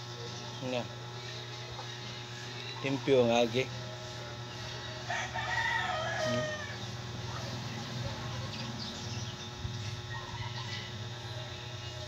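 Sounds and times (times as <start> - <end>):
rooster crowing: 4.7 - 7.5, 9.8 - 12.0.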